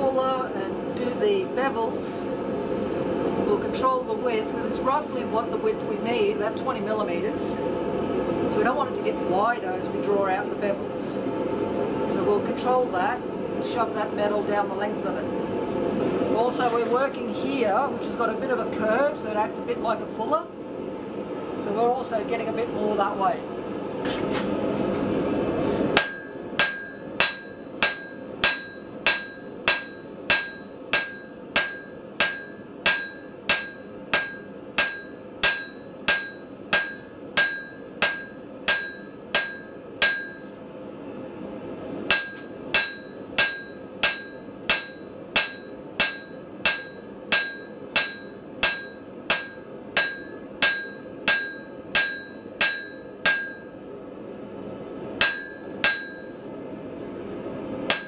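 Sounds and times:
hammer striking steel on anvil: 26.0 - 40.5, 42.1 - 53.8, 55.2 - 56.4.

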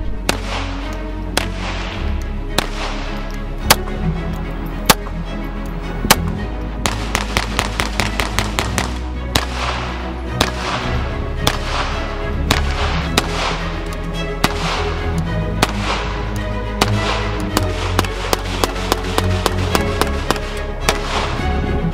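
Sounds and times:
background music: 0.0 - 21.9
pistol shots: 0.2 - 3.8, 6.1 - 21.4.

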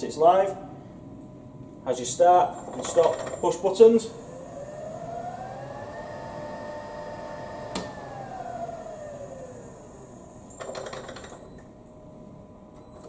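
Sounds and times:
electric motor whine: 3.4 - 10.8.

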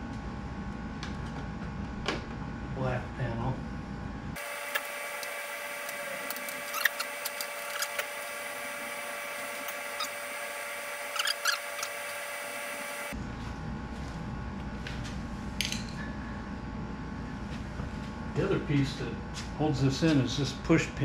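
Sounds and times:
low hum: 0.0 - 18.7
high-pitched whine: 4.4 - 13.3.

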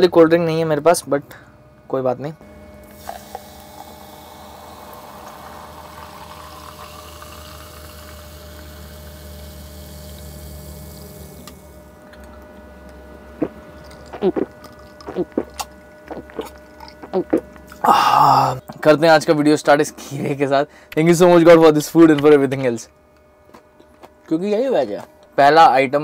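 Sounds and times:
soda fizzing: 2.8 - 11.4
soda pouring into glass: 2.8 - 11.4
sips and gulps: 13.4 - 18.6.

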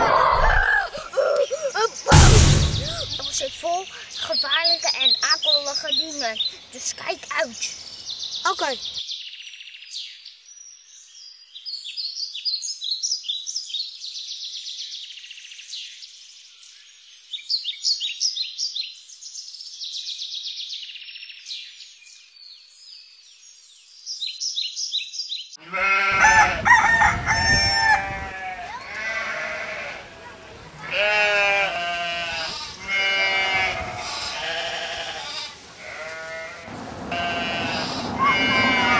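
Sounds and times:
songbirds chirping: 0.5 - 26.1, 28.1 - 38.9
farmyard animal calls: 25.6 - 38.9
rooster crowing: 25.8 - 30.1, 36.5 - 38.9.

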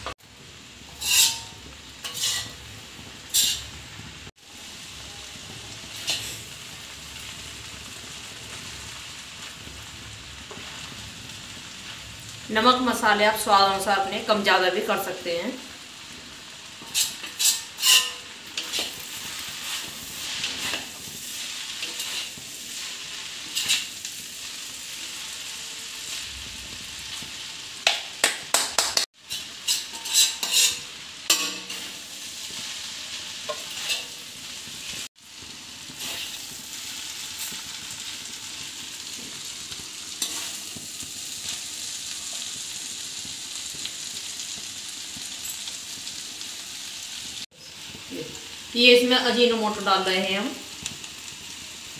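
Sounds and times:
noodles sizzling in pan: 0.0 - 51.9
utensils clinking and scraping pan: 0.9 - 3.8, 5.9 - 6.5, 16.8 - 24.2, 29.2 - 35.1, 35.9 - 36.4, 40.1 - 42.6.

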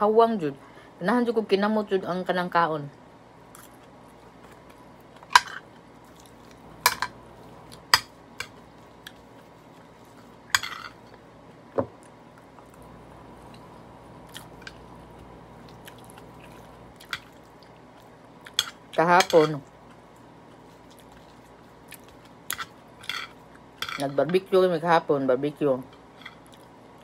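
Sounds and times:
chewing: 3.5 - 6.7, 12.0 - 18.6, 19.6 - 23.7, 26.2 - 26.8
bowl and utensils clinking: 10.6 - 11.0, 18.6 - 19.6, 22.5 - 24.4.

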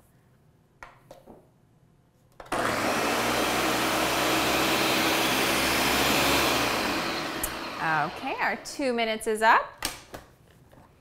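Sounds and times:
blender running: 2.5 - 8.9.

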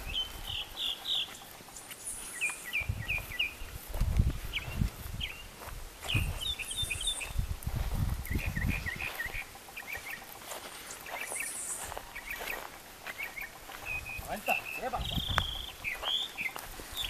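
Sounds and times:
birds chirping: 0.0 - 17.0
low rumbling microphone noise: 2.8 - 9.5.

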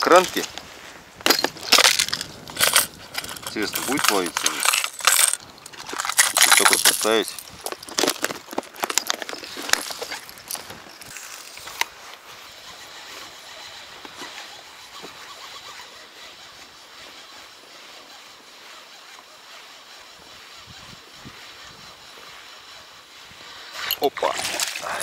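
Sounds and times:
wind hissing: 0.0 - 25.0
plastic tackle box clicks and clatter: 1.2 - 11.9, 23.8 - 25.0.

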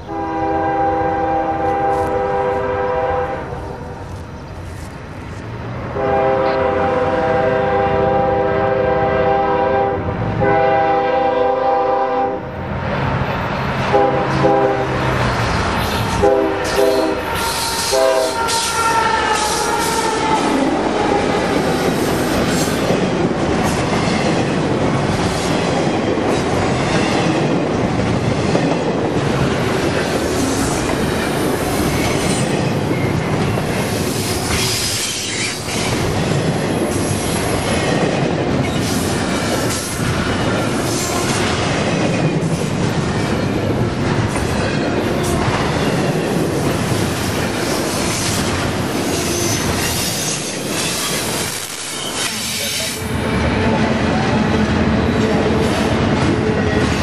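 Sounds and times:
train air horn blasts: 0.1 - 4.0, 6.0 - 12.6, 13.9 - 15.0, 15.8 - 21.3
train wheels on rails clacking: 14.0 - 57.0.

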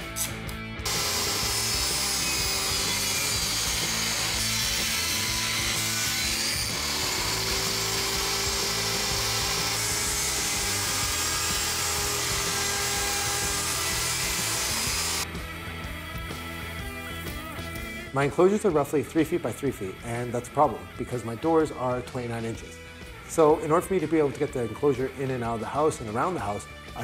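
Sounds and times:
table saw cutting plywood: 0.8 - 15.3.

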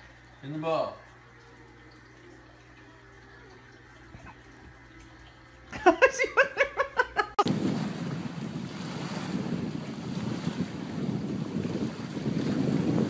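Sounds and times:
small waves lapping: 7.4 - 13.0
wind buffeting microphone: 7.4 - 13.0.

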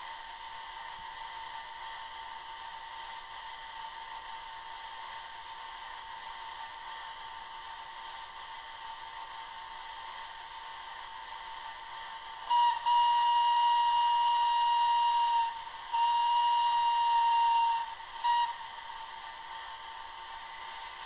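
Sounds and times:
model train horn from small speaker: 12.4 - 19.2.

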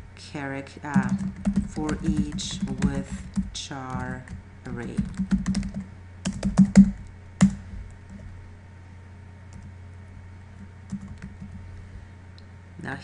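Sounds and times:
computer keyboard typing: 0.9 - 8.2, 10.6 - 11.6.

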